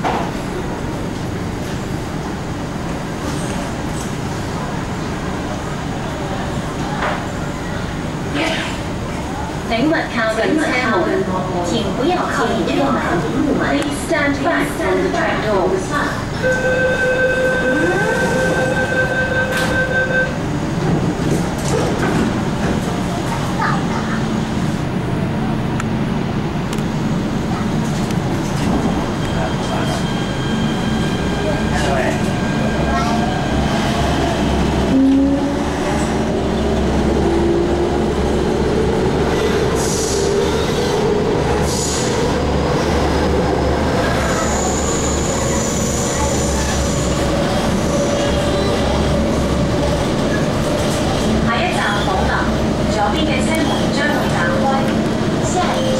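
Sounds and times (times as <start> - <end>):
train hum: 0.0 - 55.9
door warning tone: 16.4 - 20.4.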